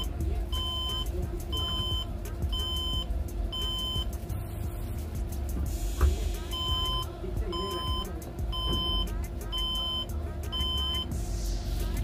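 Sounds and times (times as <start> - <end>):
steady low hum: 0.0 - 12.0
computer speaker beeping: 0.6 - 2.0, 6.5 - 11.1.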